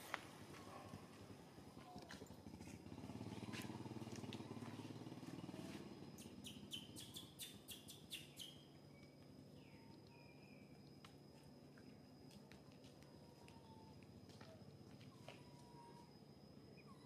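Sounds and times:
low steady hum: 0.0s - 17.0s
high-pitched bird chirps: 6.2s - 8.7s.

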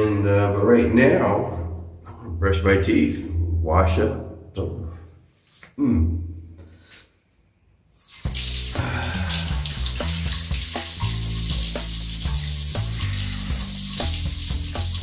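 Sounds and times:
water running from sink tap: 8.0s - 15.0s
background music with bass line: 8.3s - 15.0s.

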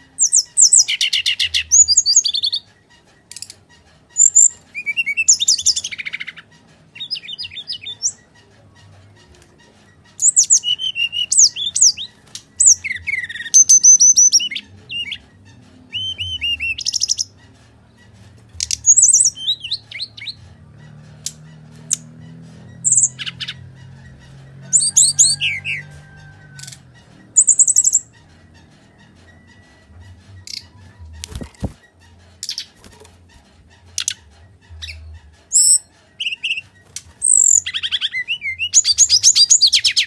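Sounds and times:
bird singing whistles and trills: 10.2s - 15.2s, 15.9s - 17.3s.

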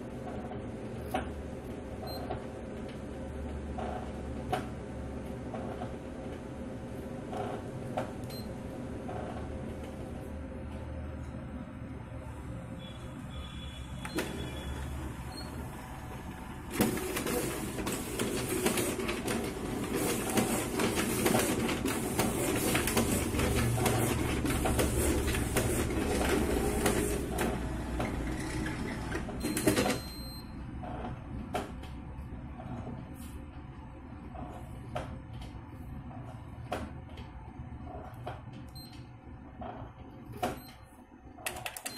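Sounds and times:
copier low hum: 0.0s - 41.9s
document feeder whirring and clicking: 14.0s - 30.0s.

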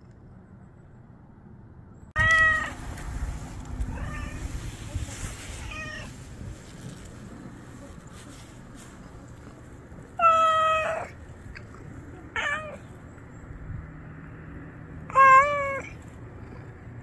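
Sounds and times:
cat meowing: 2.2s - 2.8s, 3.9s - 4.5s, 10.2s - 11.2s, 12.3s - 12.9s, 15.1s - 16.0s.

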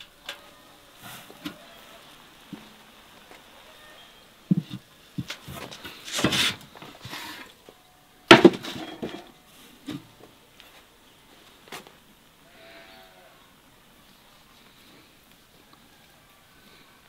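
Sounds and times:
scraping rustle: 4.5s - 7.6s, 8.3s - 10.0s.

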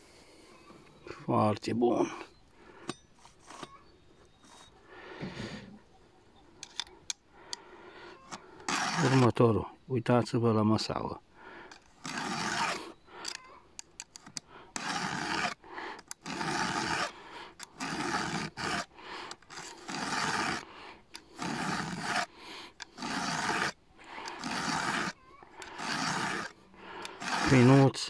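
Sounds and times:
file rasping on chain tooth: 8.2s - 9.4s, 11.7s - 28.0s.

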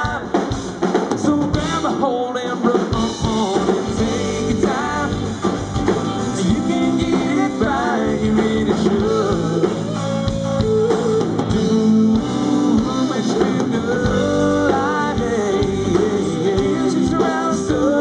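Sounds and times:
live rock band playing: 0.0s - 18.0s.

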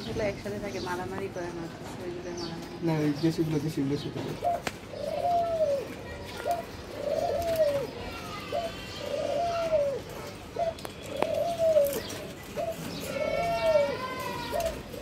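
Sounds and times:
dove cooing: 4.2s - 15.0s.

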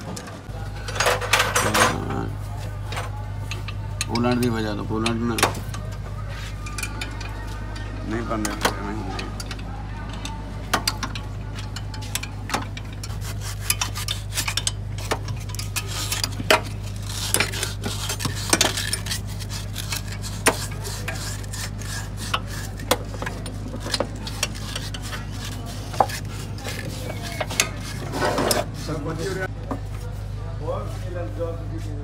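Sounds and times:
metal tools clinking and scraping: 0.1s - 29.5s.

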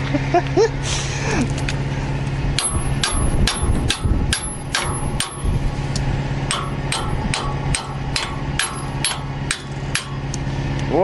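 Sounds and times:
engine hum: 0.0s - 11.0s
hammer striking metal: 2.6s - 5.6s, 6.5s - 10.3s.

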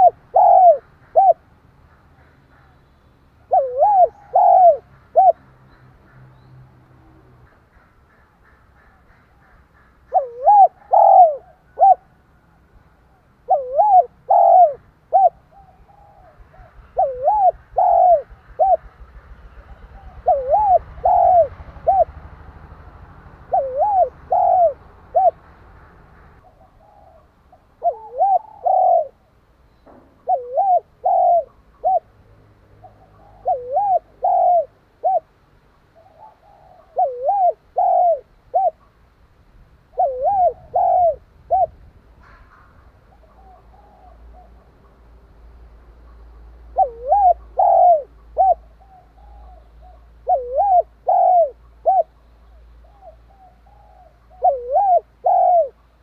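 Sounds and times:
dove cooing: 0.0s - 1.5s, 3.4s - 5.4s, 7.4s - 25.5s, 26.2s - 29.3s, 29.9s - 32.2s, 32.8s - 35.4s, 36.0s - 38.9s, 39.9s - 45.0s, 46.0s - 55.9s.

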